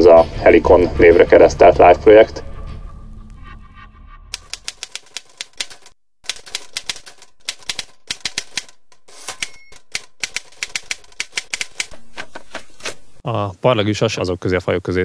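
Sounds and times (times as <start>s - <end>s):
typewriter keys clacking: 4.4s - 13.0s
typewriter bell ring: 4.8s - 11.9s.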